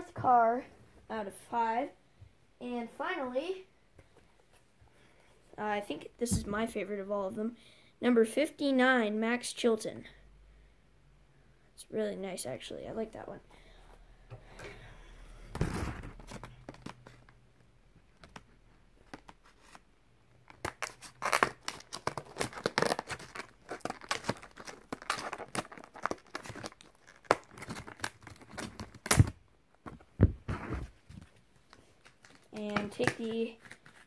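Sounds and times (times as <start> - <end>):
plastic packaging crinkling: 20.4 - 29.3, 31.6 - 34.0.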